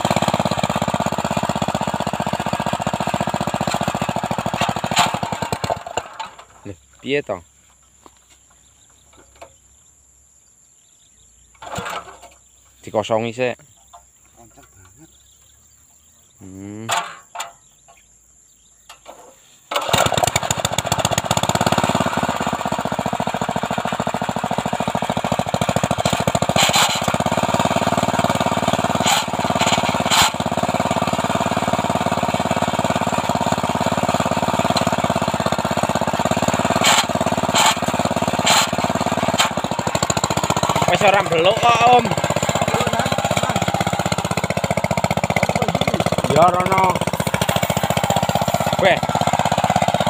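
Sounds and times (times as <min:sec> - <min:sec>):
small petrol engine running: 0:00.0 - 0:06.8, 0:11.5 - 0:12.4, 0:19.1 - 0:50.0
pull-start crank: 0:03.5 - 0:06.5, 0:19.1 - 0:50.0.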